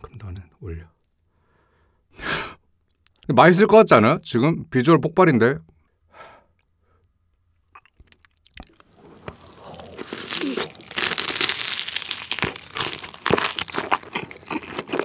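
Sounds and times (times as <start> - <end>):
crunching and chewing food: 7.6 - 15.0.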